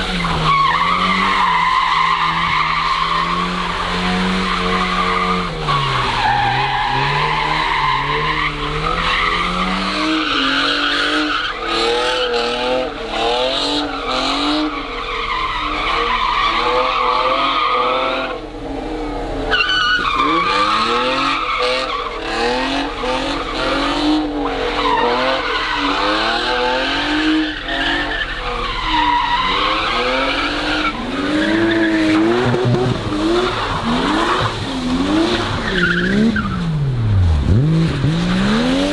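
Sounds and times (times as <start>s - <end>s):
car engines revving: 0.0s - 38.9s
tyres skidding: 0.0s - 38.9s.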